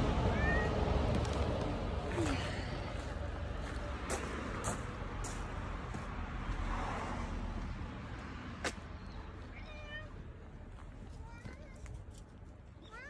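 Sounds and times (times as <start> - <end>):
cat meowing: 0.3 - 0.7, 9.5 - 10.2.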